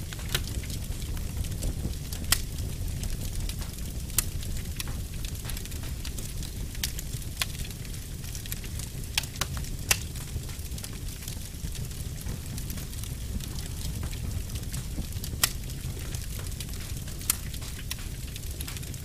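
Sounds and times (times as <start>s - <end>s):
wood fire crackling: 0.0s - 19.0s.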